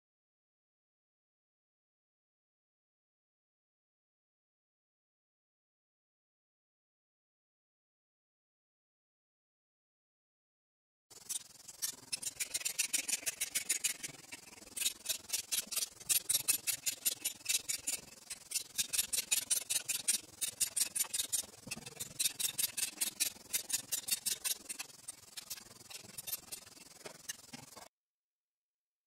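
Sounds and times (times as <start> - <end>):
socket ratchet clicking: 14.8 - 26.6.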